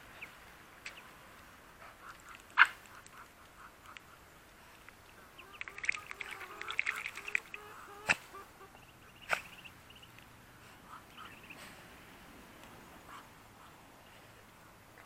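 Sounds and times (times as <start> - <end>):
ducks and hens calling: 5.1 - 12.0.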